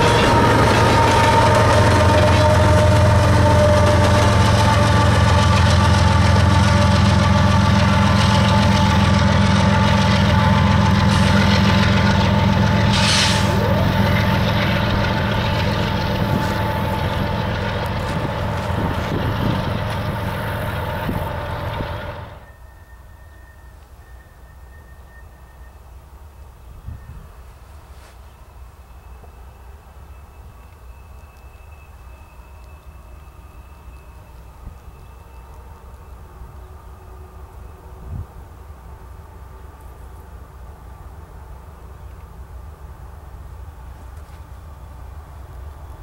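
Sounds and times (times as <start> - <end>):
diesel locomotive engine drone: 0.0 - 46.0
train wheel noise: 0.0 - 46.0
faint steady high tone: 22.4 - 27.6.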